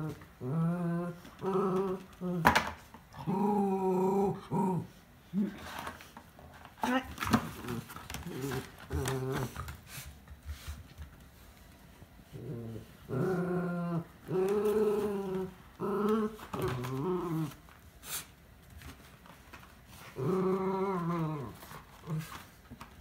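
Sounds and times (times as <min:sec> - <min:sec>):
dog growling in play: 0:00.0 - 0:02.5, 0:03.1 - 0:06.0, 0:07.4 - 0:09.8, 0:12.2 - 0:17.7, 0:20.0 - 0:22.4.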